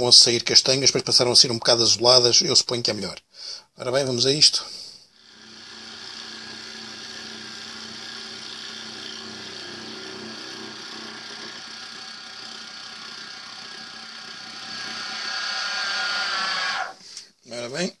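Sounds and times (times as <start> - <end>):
machine hum with whining tones: 5.2 - 17.0
milling machine cutting steel: 5.2 - 17.0.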